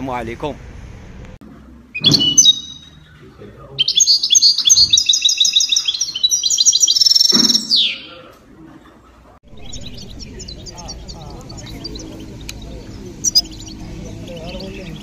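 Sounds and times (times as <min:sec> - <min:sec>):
songbird twittering: 0:01.9 - 0:08.3, 0:09.5 - 0:15.0.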